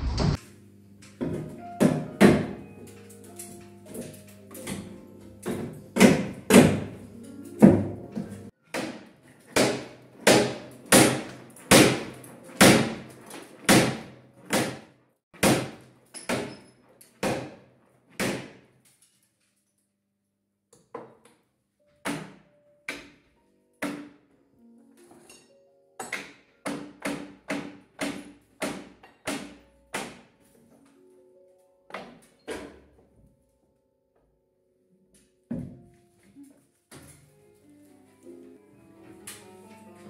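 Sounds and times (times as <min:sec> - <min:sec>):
hammer striking plaster wall: 0:01.2 - 0:02.6, 0:05.4 - 0:07.0, 0:07.6 - 0:19.0, 0:26.0 - 0:30.4.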